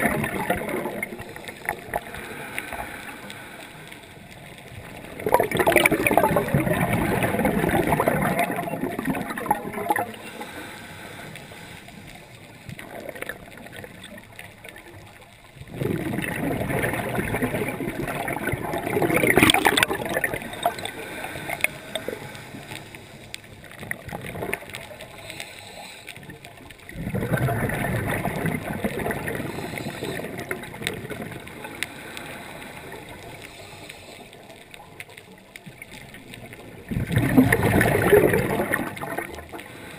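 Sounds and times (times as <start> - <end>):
underwater hiss: 0.0 - 13.8, 15.8 - 26.8, 27.7 - 35.8, 37.3 - 39.9
exhaled bubbles rushing underwater: 0.0 - 25.4, 26.2 - 39.9.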